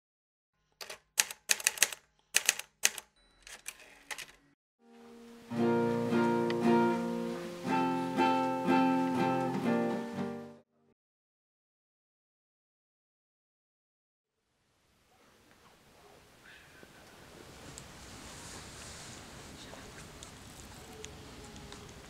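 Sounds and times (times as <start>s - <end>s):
sharp clicks: 0.8s - 4.4s
strummed string instrument chords: 4.9s - 10.6s.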